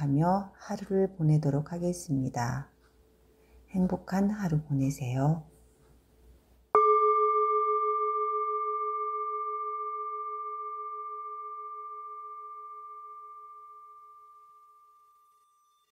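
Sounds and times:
singing bowl ringing: 6.8s - 15.9s.

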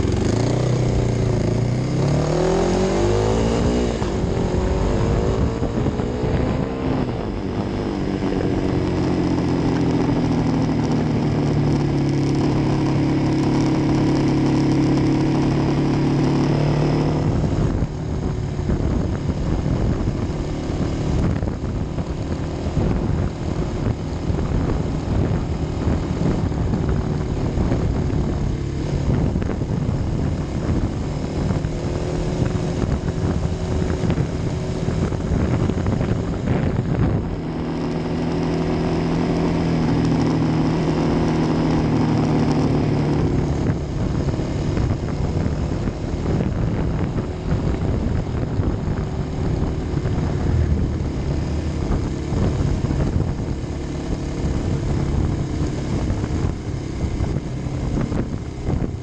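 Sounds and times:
motorcycle engine running: 0.0s - 59.0s
wind rushing over microphone: 0.0s - 59.0s.

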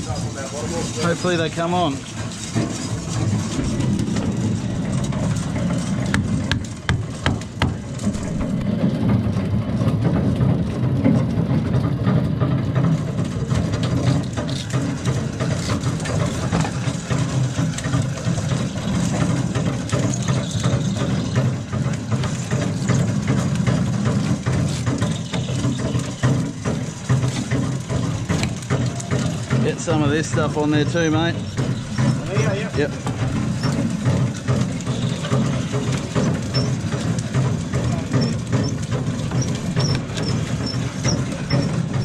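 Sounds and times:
diesel engine drone: 0.0s - 42.0s
sharp knocks: 2.6s - 9.3s.

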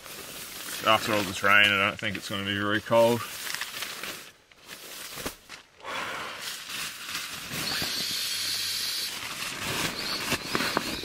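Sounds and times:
air hissing through valve: 7.5s - 9.2s.

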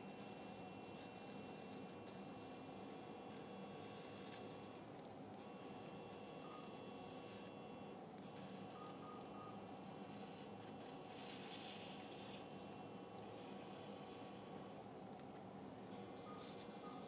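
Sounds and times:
low hum of equipment: 0.0s - 17.0s
electrocautery pencil hissing: 9.7s - 14.5s.

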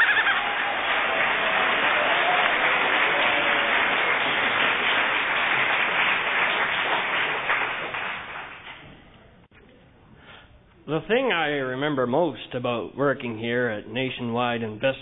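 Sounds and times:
audience applauding: 0.0s - 8.8s.

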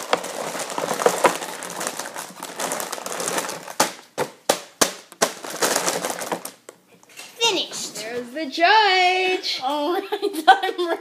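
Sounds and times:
objects rustling and crinkling: 0.0s - 8.4s.

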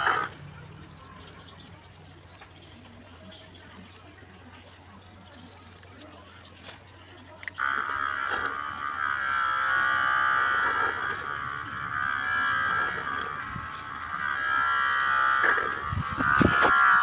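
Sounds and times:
high whine through a tube: 7.4s - 17.0s.

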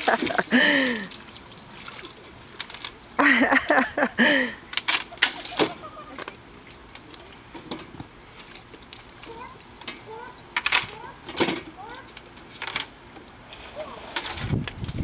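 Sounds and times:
person crying out: 0.4s - 1.2s.

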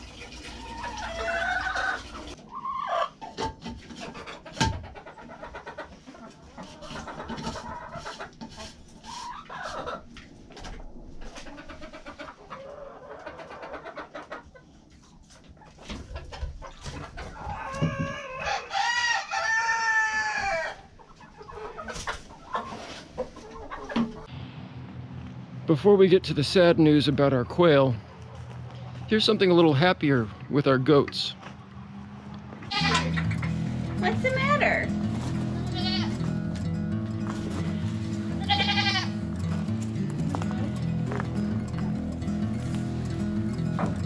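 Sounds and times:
chickens clucking: 0.0s - 24.3s, 26.9s - 44.0s
rooster crowing: 18.0s - 20.8s.

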